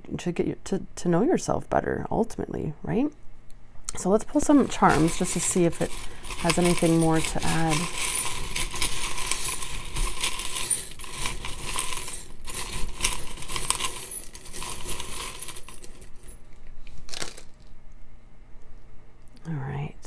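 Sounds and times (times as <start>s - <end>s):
charms rattling in a glass jar: 4.4s - 16.4s.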